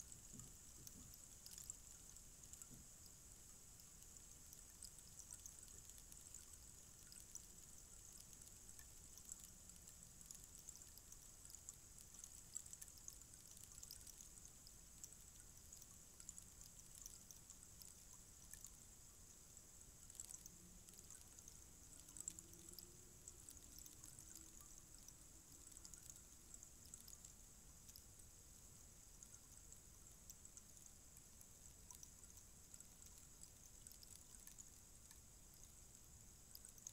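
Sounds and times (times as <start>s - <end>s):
rainstick trickling patter: 0.0s - 36.9s.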